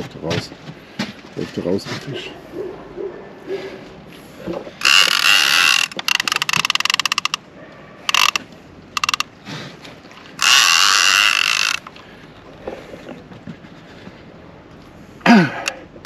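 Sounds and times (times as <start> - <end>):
fishing reel drag buzzing: 4.8 - 7.4, 8.1 - 8.4, 9.0 - 9.2, 10.4 - 11.9.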